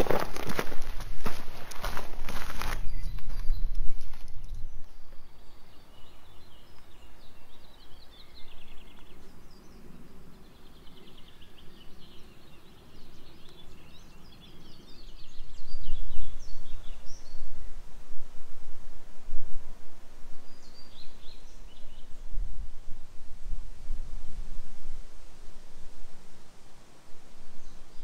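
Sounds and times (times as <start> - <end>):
songbirds trilling and chirping: 0.0 - 18.0, 20.2 - 23.2.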